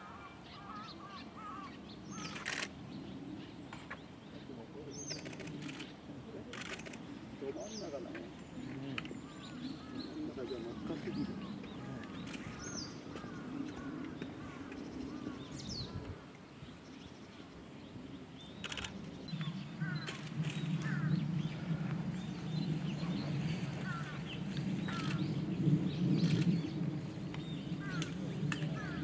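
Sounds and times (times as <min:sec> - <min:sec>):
small birds chirping: 0:00.0 - 0:29.0
steady low rumble: 0:01.8 - 0:29.0
sharp clicks: 0:05.1 - 0:05.9, 0:06.5 - 0:07.0, 0:18.6 - 0:19.0.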